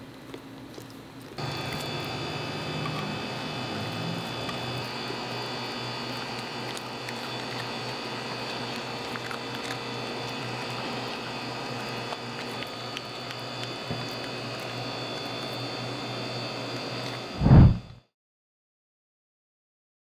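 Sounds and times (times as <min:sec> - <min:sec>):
small dog chewing: 0:00.0 - 0:16.0
room hum: 0:00.0 - 0:18.0
low thump: 0:17.4 - 0:17.9.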